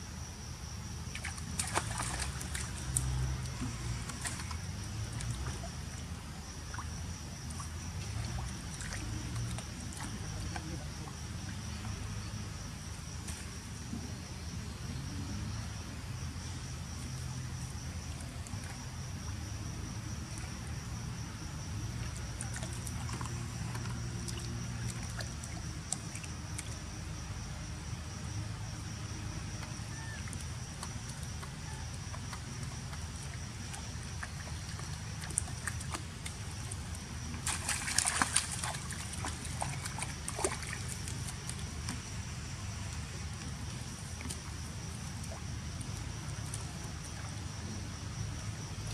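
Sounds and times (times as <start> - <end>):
high insect drone: 0.0 - 48.9
monkey splashing in water: 1.1 - 12.2, 28.7 - 42.2.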